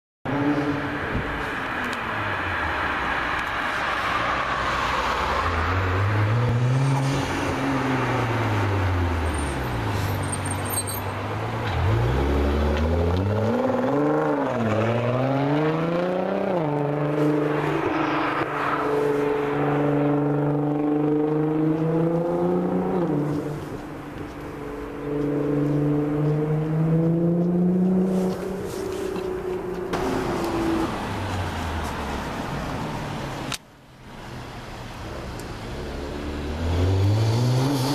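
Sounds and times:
car engine revving: 0:11.6 - 0:32.2, 0:35.0 - 0:37.9.

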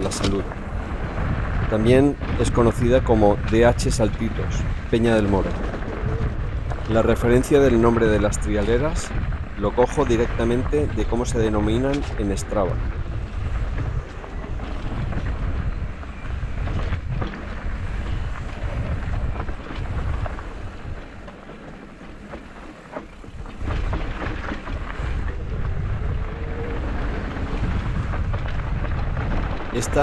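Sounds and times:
bike rattling and knocking: 0:00.0 - 0:30.0
wind buffeting microphone: 0:00.0 - 0:30.0.

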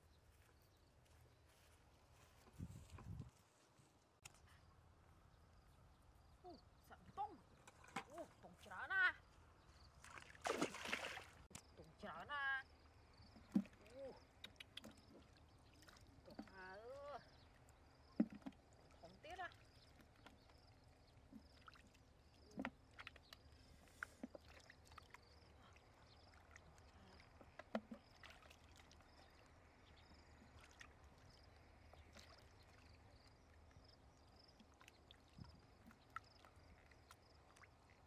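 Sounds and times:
water splashing and sloshing: 0:09.8 - 0:12.0, 0:13.0 - 0:38.0.

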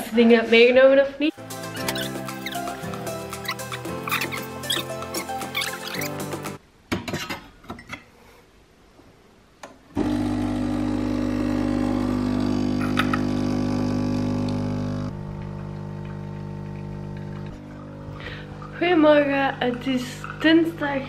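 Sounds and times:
espresso machine pump humming: 0:10.0 - 0:18.8.

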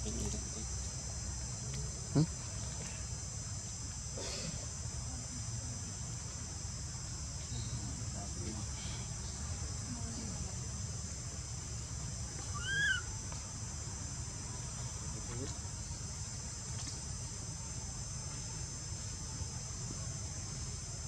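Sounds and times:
insects chirring: 0:00.0 - 0:21.0
high rising and falling call: 0:12.6 - 0:13.0.

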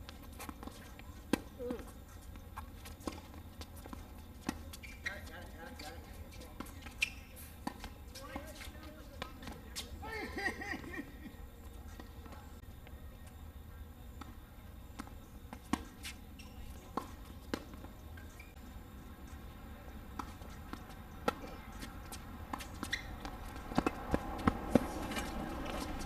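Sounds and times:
tennis balls struck by rackets: 0:00.0 - 0:09.9, 0:14.1 - 0:18.6, 0:19.8 - 0:26.0
balls bouncing on hard court: 0:00.0 - 0:10.0, 0:14.2 - 0:18.6, 0:20.1 - 0:26.0.

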